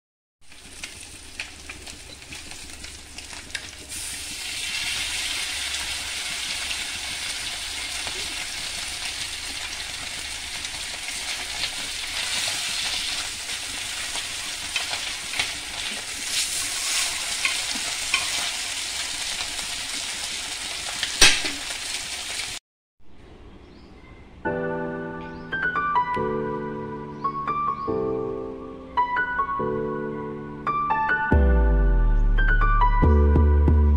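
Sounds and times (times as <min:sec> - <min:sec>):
fish sizzling in oil: 0:00.4 - 0:22.6.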